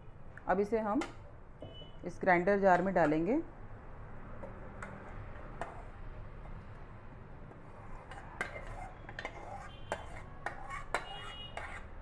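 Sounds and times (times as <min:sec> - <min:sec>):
metal spoon scraping a pan: 0:04.8 - 0:06.6, 0:07.6 - 0:12.0.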